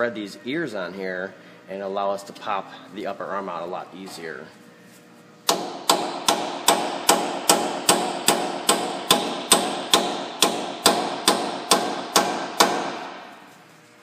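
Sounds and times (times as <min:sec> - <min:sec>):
hammer striking metal chisel: 0:05.5 - 0:13.2.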